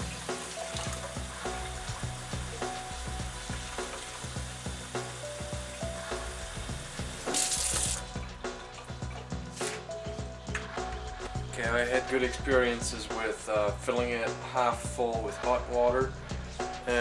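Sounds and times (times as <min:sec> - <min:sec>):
tap water running into plastic bottle: 0:00.0 - 0:09.8
background music with held notes: 0:00.0 - 0:17.0.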